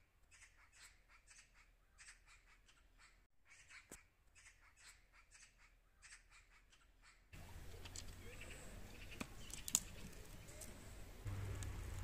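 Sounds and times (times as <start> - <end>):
faint bird chirping: 0.2 - 11.6
dry twigs clicking on stone: 9.1 - 10.8.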